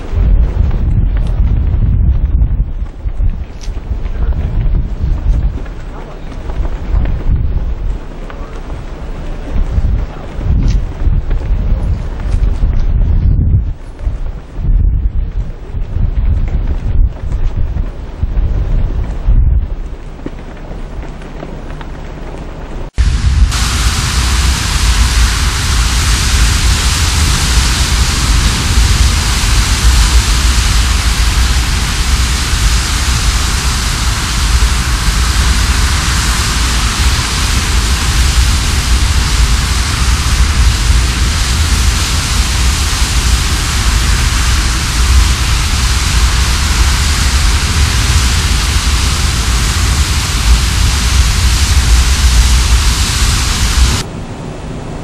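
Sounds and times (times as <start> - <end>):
wind on microphone: 0.0 - 55.0
water rushing along ship hull: 23.0 - 55.0.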